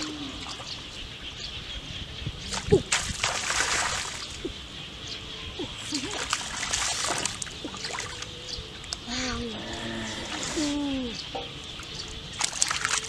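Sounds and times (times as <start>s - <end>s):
feet splashing in puddle: 2.5s - 4.4s, 5.9s - 8.3s, 12.4s - 13.0s
water trickling: 5.6s - 13.0s.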